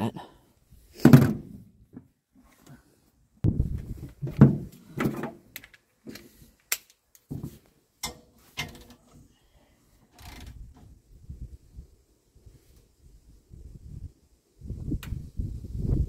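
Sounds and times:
metal clunks and clicks: 8.0s - 9.0s.

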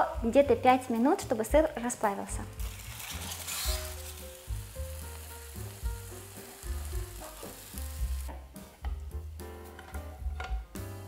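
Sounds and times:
food sizzling in a frying pan: 2.4s - 8.5s.

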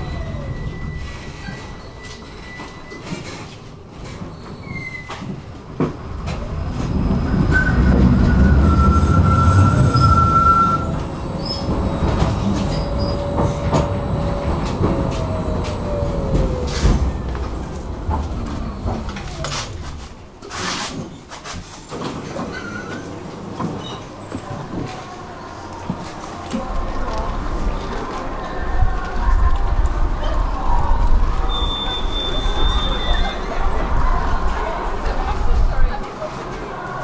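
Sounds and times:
high wheel squeal: 0.0s - 3.4s, 6.7s - 20.0s, 31.4s - 33.8s
tram rumbling on rails: 0.0s - 37.0s.

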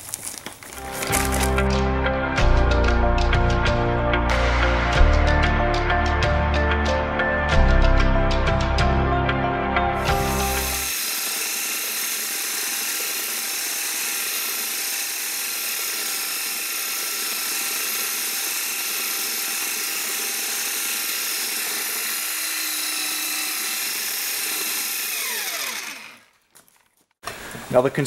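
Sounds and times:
electric paddle mixer churning concrete: 10.0s - 26.4s.

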